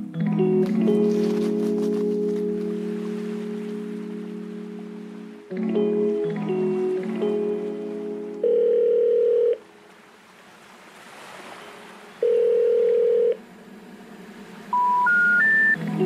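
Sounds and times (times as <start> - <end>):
electronic beeps: 14.7 - 15.8.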